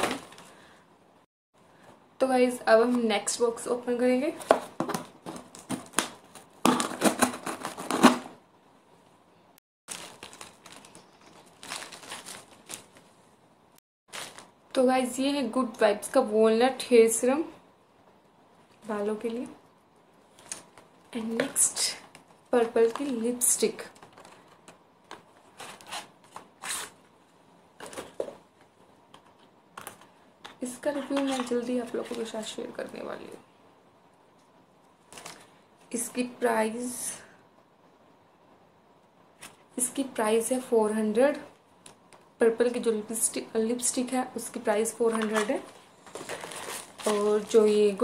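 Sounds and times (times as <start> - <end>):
bubble wrap crinkling: 9.9 - 13.2, 14.1 - 14.7, 45.2 - 48.0
knife slitting packing tape: 25.6 - 27.0
cardboard box rustling and scraping: 46.1 - 47.4.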